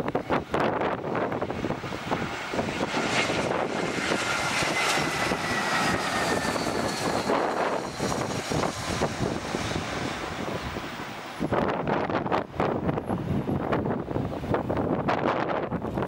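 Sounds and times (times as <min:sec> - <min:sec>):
jet engines whining: 0:00.0 - 0:15.1
wind buffeting microphone: 0:00.0 - 0:16.0.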